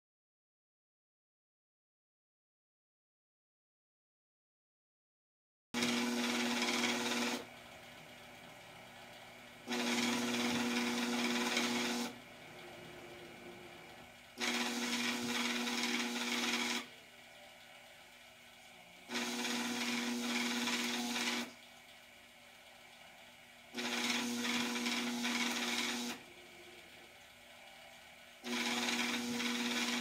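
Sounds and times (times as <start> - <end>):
feed rollers rasping: 5.8 - 7.4, 9.7 - 16.9, 28.5 - 30.0
sheet feeder motor humming: 5.8 - 30.0.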